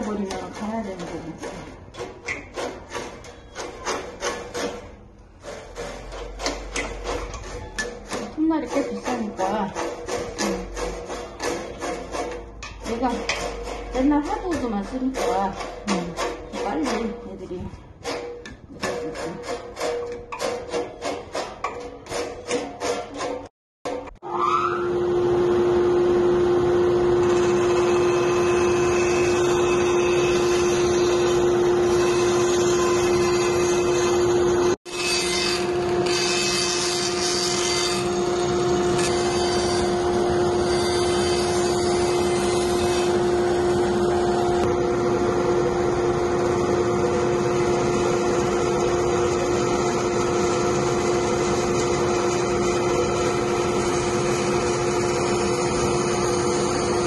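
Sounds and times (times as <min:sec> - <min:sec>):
bandsaw cutting wood: 0:08.1 - 0:13.1, 0:26.7 - 0:44.7, 0:47.3 - 0:57.0.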